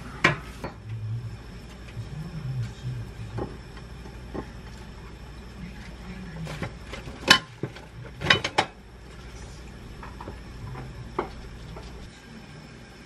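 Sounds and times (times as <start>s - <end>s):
utensils clinking on ceramic dishes: 6.5s - 8.8s.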